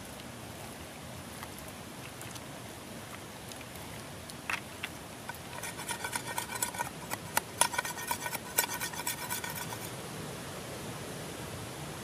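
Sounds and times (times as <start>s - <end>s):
cleaver shaving wooden skewers: 4.5s - 9.9s.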